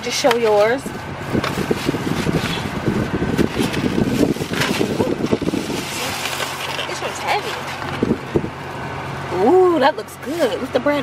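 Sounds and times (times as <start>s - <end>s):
plastic bag rustling: 0.4s - 8.4s.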